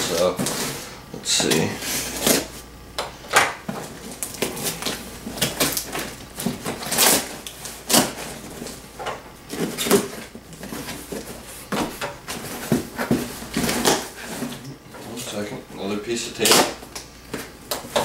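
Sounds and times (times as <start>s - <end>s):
packing tape ripping off cardboard: 3.8s - 8.8s, 9.5s - 11.0s, 11.8s - 14.6s.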